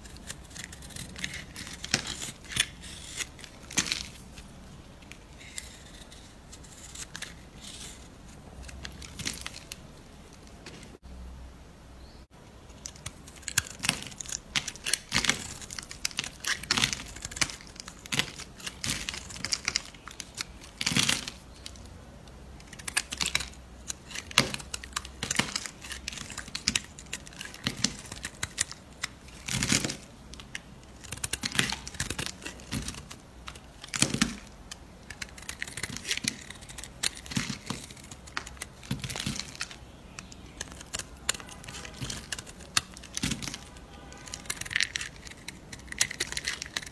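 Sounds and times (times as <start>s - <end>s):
knife blade scraping soap: 0.0s - 3.4s.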